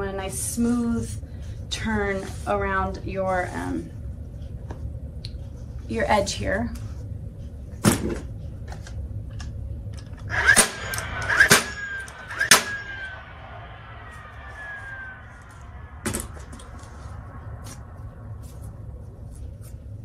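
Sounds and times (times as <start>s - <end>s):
faint falling whine: 9.4s - 20.0s.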